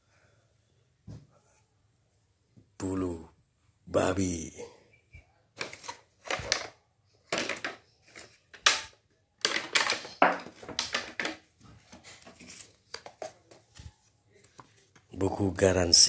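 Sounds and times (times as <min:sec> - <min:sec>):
plastic packaging crinkling: 0:09.4 - 0:11.4.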